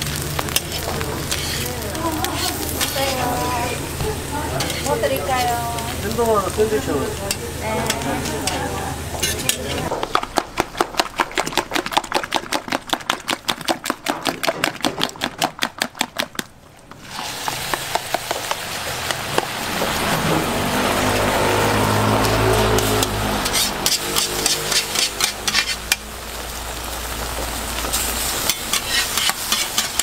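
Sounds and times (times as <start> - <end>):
food sizzling on a griddle: 0.0 - 11.6, 16.8 - 30.0
utensil beating in a bowl: 9.9 - 16.5.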